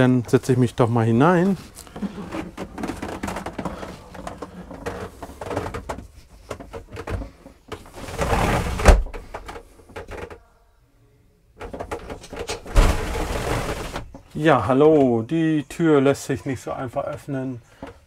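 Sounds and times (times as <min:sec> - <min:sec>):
shuffling and light knocks: 0:00.0 - 0:10.5
sliding door thudding shut: 0:12.1 - 0:14.1.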